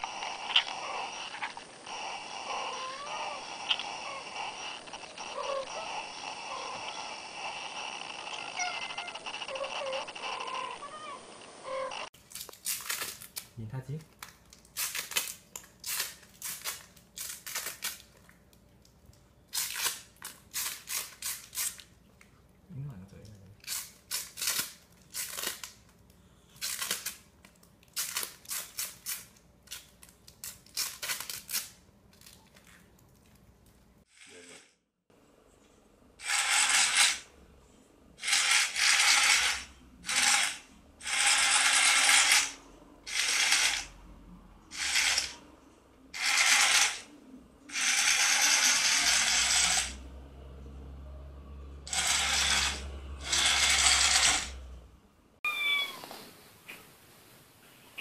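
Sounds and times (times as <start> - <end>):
toy motor whirring: 0.0 - 13.3, 14.8 - 18.1, 19.5 - 21.9, 23.6 - 25.8, 26.6 - 27.2, 27.9 - 31.8, 36.2 - 37.3, 38.2 - 44.0, 44.7 - 45.4, 46.1 - 47.1, 47.7 - 50.0, 51.9 - 54.7.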